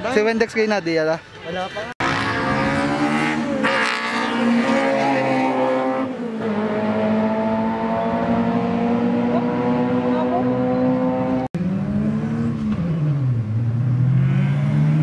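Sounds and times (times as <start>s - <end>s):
drag racing car engines: 2.0s - 15.0s.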